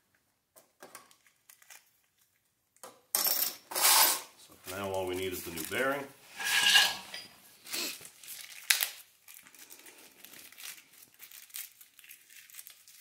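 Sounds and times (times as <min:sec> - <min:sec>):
plastic bag crinkling: 0:04.6 - 0:06.1, 0:07.7 - 0:13.0.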